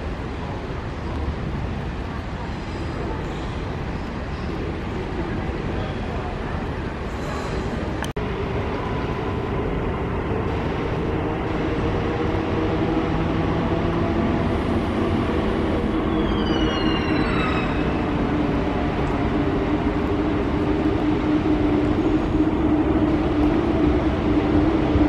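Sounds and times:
trains rumbling on viaduct: 0.0 - 25.0
high whining tones falling: 15.9 - 18.3.

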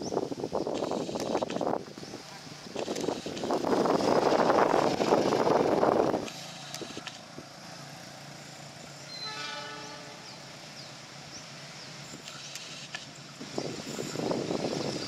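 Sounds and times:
train running: 0.0 - 15.0
diesel locomotive horn blast: 9.0 - 10.5.

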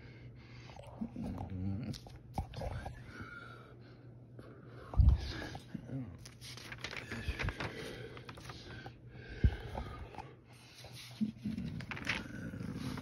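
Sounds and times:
newspaper rustling: 6.2 - 8.8, 11.0 - 13.0.

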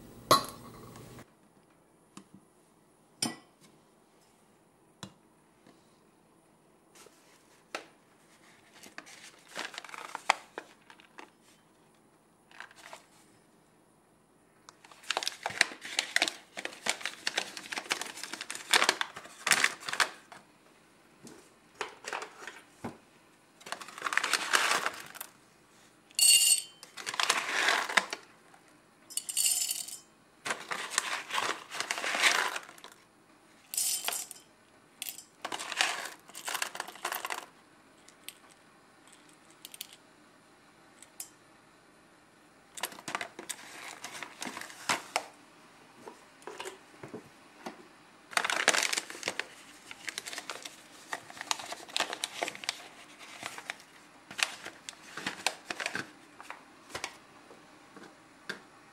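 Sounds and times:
paper bag crinkling: 8.4 - 11.3, 14.8 - 20.3, 23.6 - 25.3, 26.9 - 28.2, 30.5 - 33.0, 35.5 - 37.4, 48.3 - 57.1
coffee beans rattling into metal cup: 23.7 - 25.3, 26.2 - 28.2, 29.1 - 33.0, 33.7 - 37.5.

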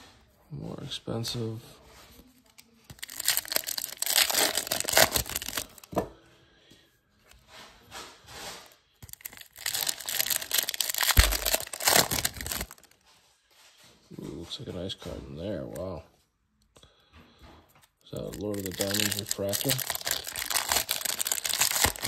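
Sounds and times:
cards shuffling: 2.9 - 5.9, 9.0 - 13.0, 18.2 - 22.0
foil wrappers tearing and crinkling: 2.9 - 5.9, 9.0 - 13.0, 18.2 - 22.0.

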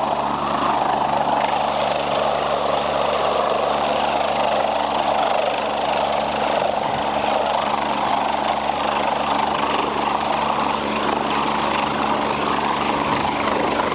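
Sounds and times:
helicopter running: 0.0 - 13.9.

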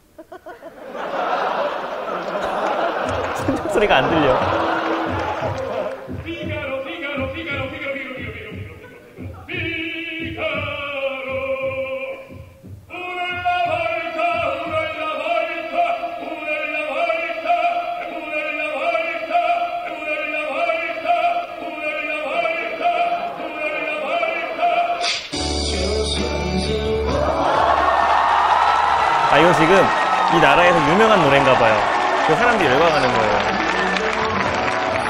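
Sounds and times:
operatic singing with vibrato: 0.9 - 35.0
low pulsing heartbeat: 4.3 - 14.9.

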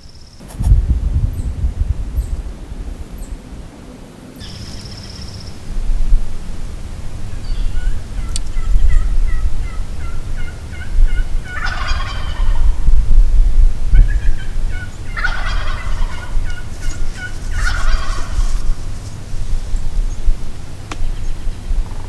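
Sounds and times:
turkey yelping notes: 7.3 - 12.8, 13.9 - 18.9
turkey gobbling: 7.3 - 12.9, 13.9 - 19.2.

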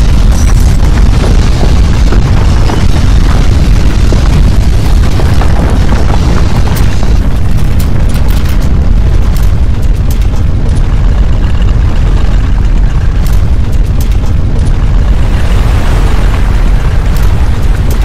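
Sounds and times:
earthquake rumble: 0.0 - 18.0
sharp clicks: 6.4 - 11.7, 12.4 - 14.8, 17.1 - 18.0.

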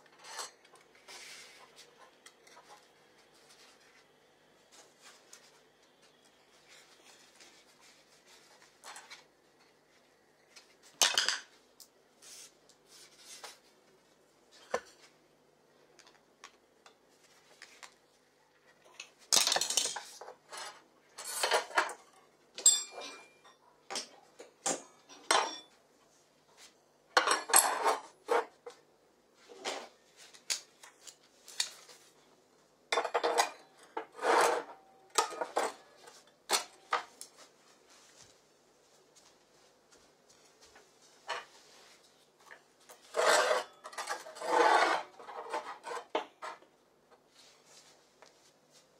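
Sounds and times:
metal tools clattering on tile floor: 0.0 - 0.7, 11.0 - 11.6, 18.8 - 25.8, 27.2 - 28.5, 32.9 - 37.1, 43.0 - 46.6.

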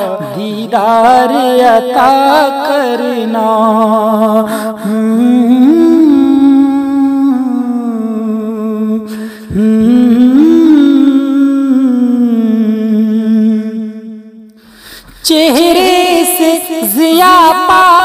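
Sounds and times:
man humming a melody: 4.9 - 13.8.

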